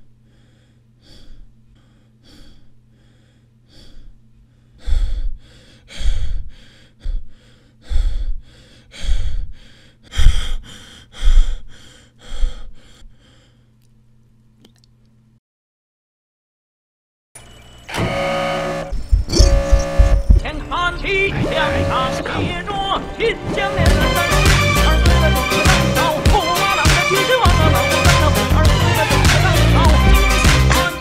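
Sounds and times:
man breathing hard: 0.2s - 13.8s.

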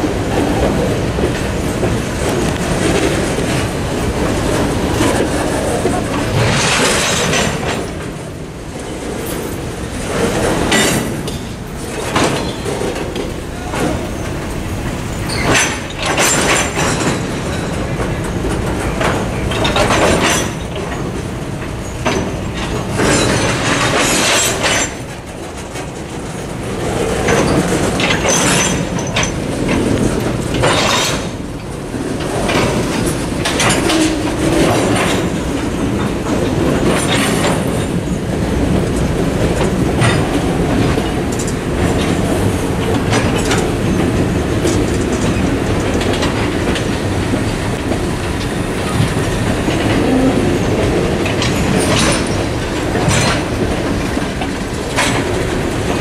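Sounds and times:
train wheels clacking: 0.0s - 56.0s
wheel squeal: 15.1s - 17.8s.

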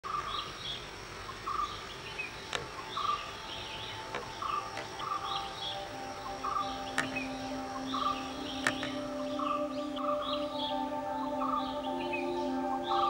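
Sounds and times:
bird chirps: 0.1s - 13.0s
bird warbling calls: 0.1s - 13.0s
insect drone: 0.1s - 13.0s
sharp clicks: 2.5s - 2.9s, 4.0s - 5.4s, 6.9s - 7.3s, 8.6s - 9.0s.

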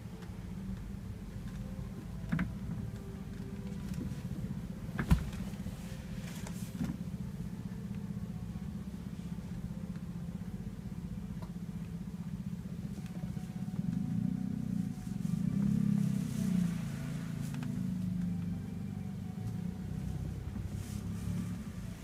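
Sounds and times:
low mechanical hum with flutter: 0.0s - 22.0s.

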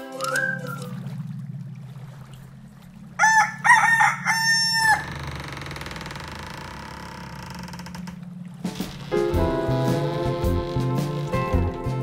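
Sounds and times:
rooster crowing: 3.2s - 5.2s
low music drone: 8.3s - 12.0s.

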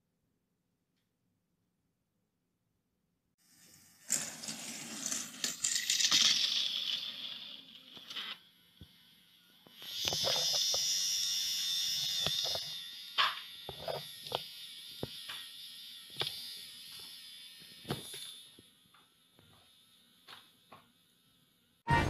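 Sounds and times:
toy train motors whirring: 3.4s - 20.6s.

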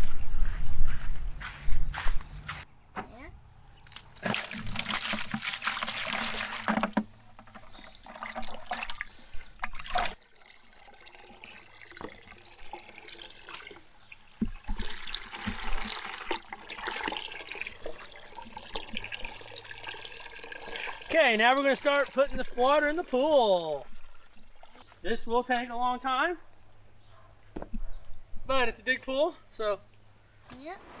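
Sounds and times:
hose water filling a plastic bucket: 3.8s - 25.0s.

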